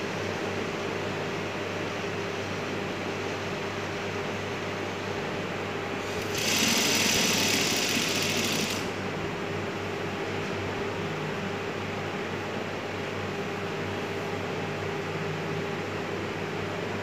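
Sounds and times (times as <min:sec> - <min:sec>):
sewing machine stitching: 0:06.0 - 0:09.0.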